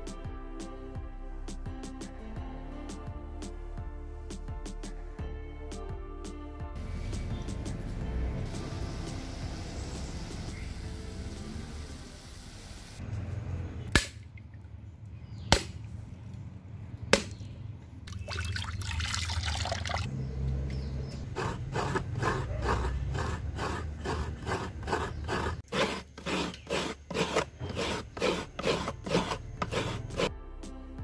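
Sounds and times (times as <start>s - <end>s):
coconut water trickling: 18.0s - 20.7s
coconut scraping: 20.7s - 30.3s.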